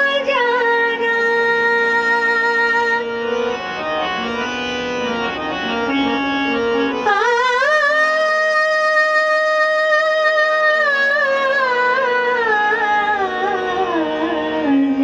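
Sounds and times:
woman singing classical vocal: 0.0 - 3.1, 7.0 - 15.0
harmonium: 0.0 - 15.0
tanpura drone: 0.0 - 15.0.

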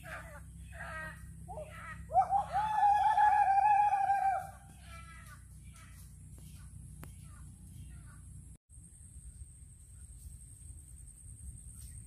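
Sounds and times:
rooster crowing: 2.1 - 4.6.

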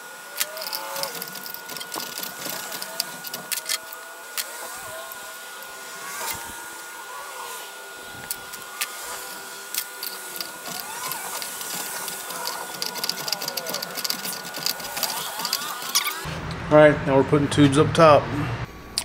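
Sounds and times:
metal coupler clicking: 0.4 - 4.5, 8.2 - 16.2.

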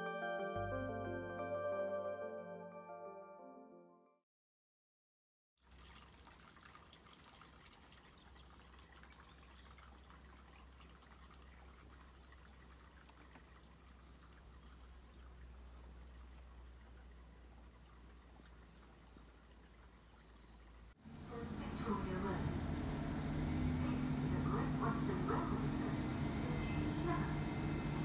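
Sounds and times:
low rumble: 21.2 - 28.0.

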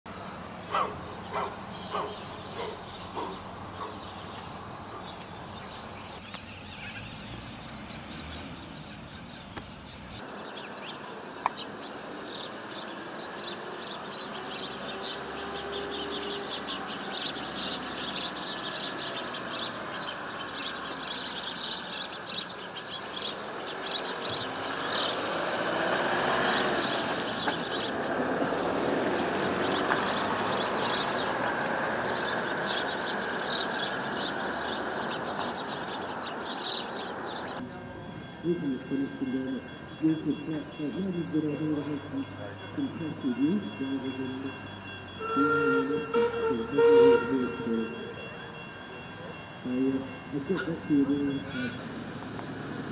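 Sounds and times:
small birds chirping: 0.2 - 37.7.

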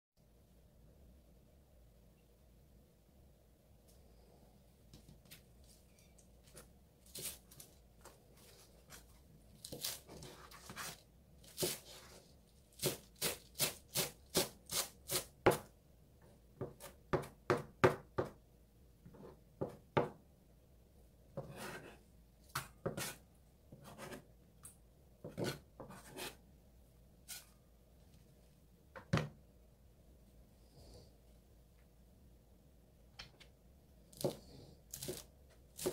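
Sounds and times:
knife chopping on a plastic board: 12.8 - 15.7, 16.6 - 18.4, 25.2 - 26.4.

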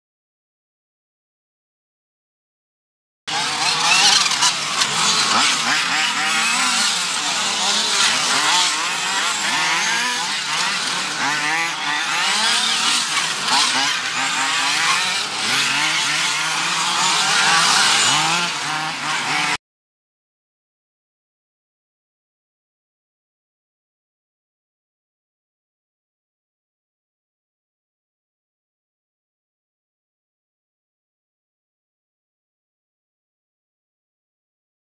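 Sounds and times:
rc car engines revving: 3.3 - 19.6.

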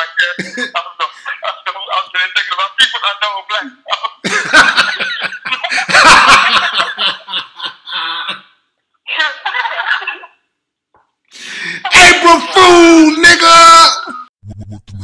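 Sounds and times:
people laughing: 0.0 - 2.8, 3.9 - 10.4.

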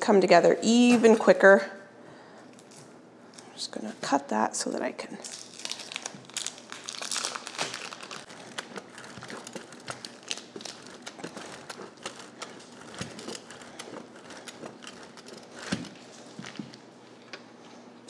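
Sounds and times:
plastic wrapping crinkling: 5.2 - 17.3.

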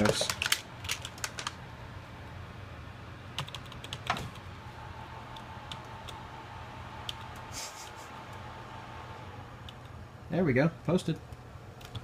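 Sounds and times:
steady low hum: 0.0 - 12.0
keyboard keys clicking: 3.4 - 4.4, 11.8 - 12.0.

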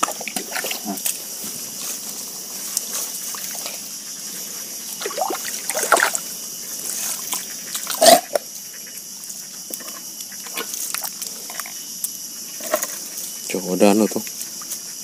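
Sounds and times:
hands and feet squelching in mud: 0.0 - 3.8, 4.8 - 8.4.

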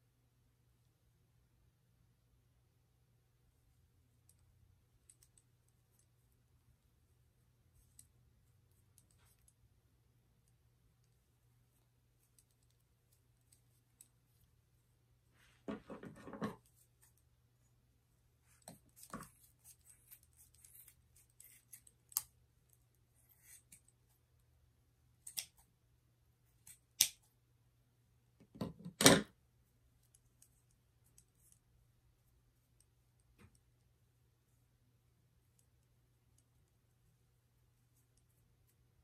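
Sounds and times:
scissors snipping cord: 18.5 - 23.9, 25.2 - 25.7, 26.6 - 27.3.

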